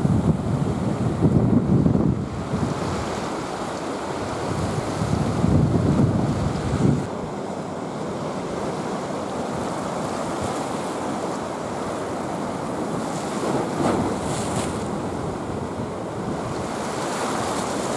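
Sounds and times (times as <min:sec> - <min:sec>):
wind buffeting microphone: 0:00.0 - 0:03.5, 0:04.2 - 0:07.1
sea water washing against breakwater: 0:07.7 - 0:17.9.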